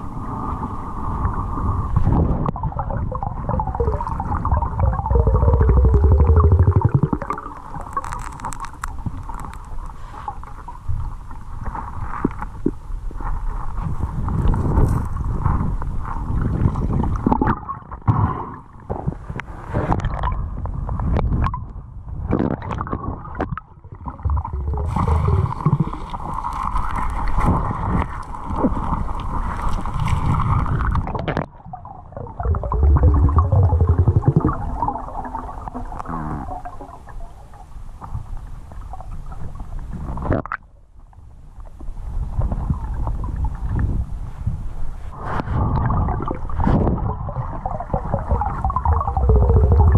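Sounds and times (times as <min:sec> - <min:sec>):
underwater river current rushing: 0:00.0 - 0:12.2, 0:23.0 - 0:40.3, 0:45.0 - 0:49.9
steady hum: 0:48.2 - 0:49.9.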